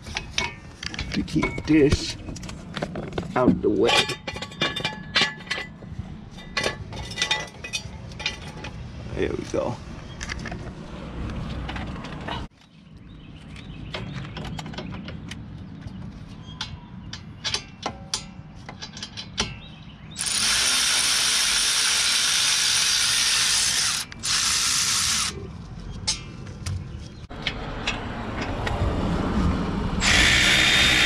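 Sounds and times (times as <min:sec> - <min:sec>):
power ratchet hissing: 0:20.2 - 0:25.4, 0:30.0 - 0:31.0.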